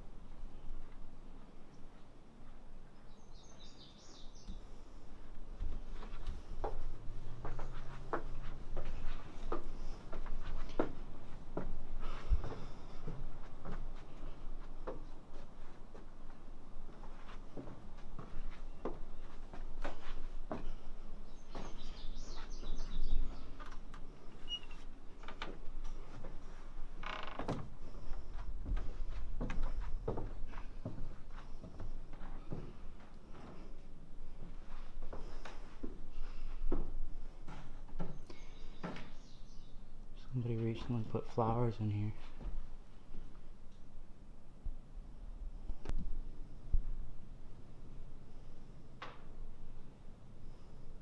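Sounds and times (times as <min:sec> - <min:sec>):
footsteps on wooden stairs: 0:04.4 - 0:39.4, 0:42.2 - 0:43.3
wood creaking: 0:17.0 - 0:39.4.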